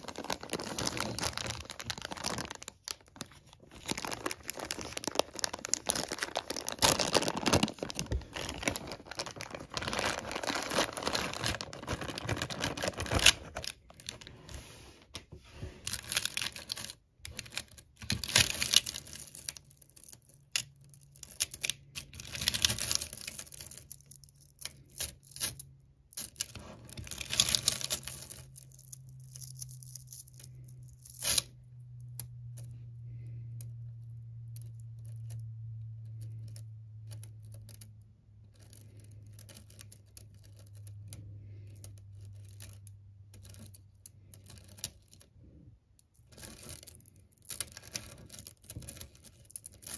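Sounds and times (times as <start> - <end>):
plastic bag crinkling and tearing: 0.0 - 14.5, 15.9 - 25.6, 26.2 - 31.5
low steady hum: 0.0 - 49.9.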